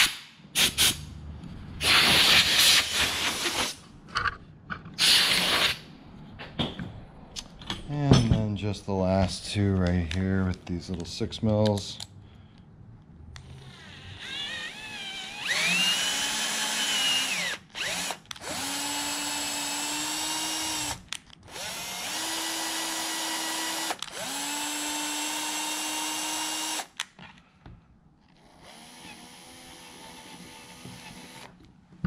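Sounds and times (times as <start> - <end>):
cordless drill whining: 13.4 - 26.9, 28.4 - 31.6.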